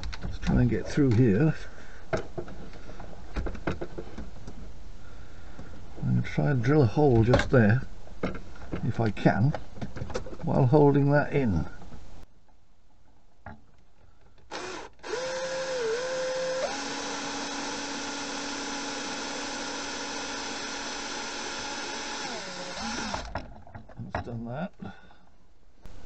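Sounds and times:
small power drill running: 14.5 - 23.3.

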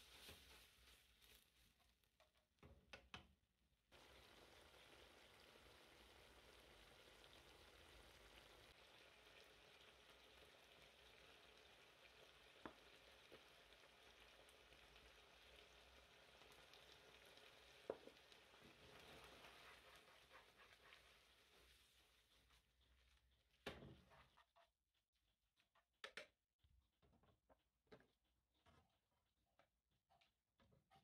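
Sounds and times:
pasta sizzling in a frying pan: 3.9 - 22.7.

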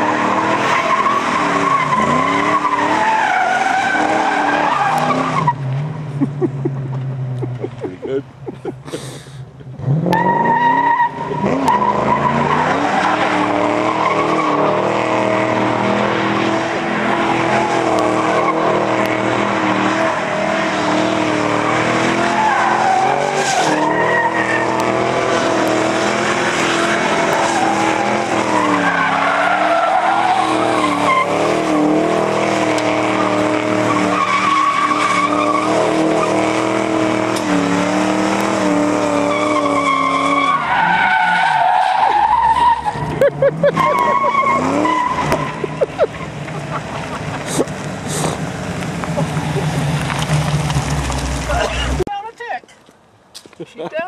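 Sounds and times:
car engine revving high: 0.0 - 5.6, 9.8 - 52.0
tyres squealing: 21.2 - 37.8, 38.5 - 48.4.

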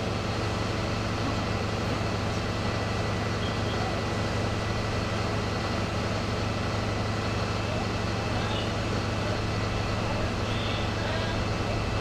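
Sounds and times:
engine humming with hiss: 0.0 - 12.0.

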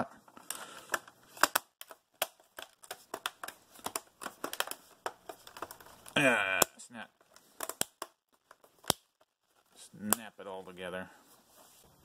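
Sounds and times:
sharp plastic clicks: 0.4 - 6.2, 7.2 - 9.3.

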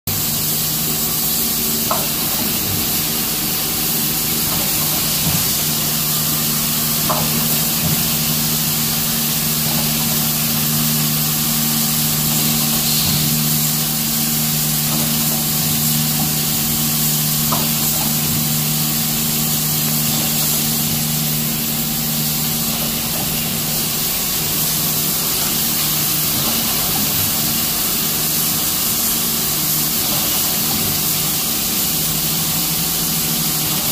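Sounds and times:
screw assembly machines running: 1.8 - 18.9.

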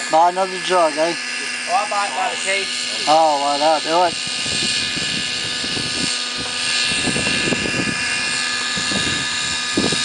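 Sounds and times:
model helicopter engine whine: 0.0 - 10.0.

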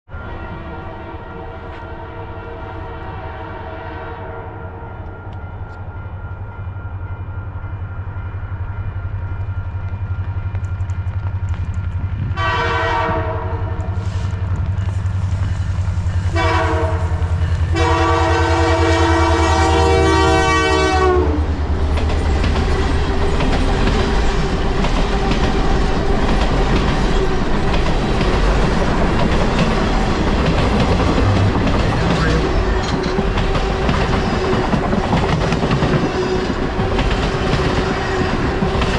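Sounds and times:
train air horn blasts: 0.1 - 5.8, 12.3 - 14.6, 16.2 - 21.6
diesel locomotive engine rumble: 4.5 - 38.9
train wheels clacking on rails: 9.1 - 18.8, 19.7 - 38.9.

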